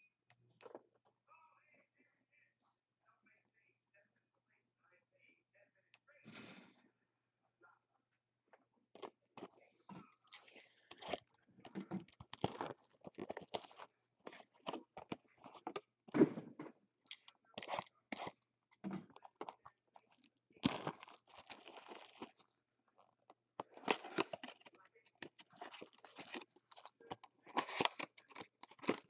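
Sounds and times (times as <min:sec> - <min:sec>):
plastic wrap crinkling and tearing: 0:10.3 - 0:15.7, 0:20.2 - 0:22.5, 0:23.6 - 0:29.0.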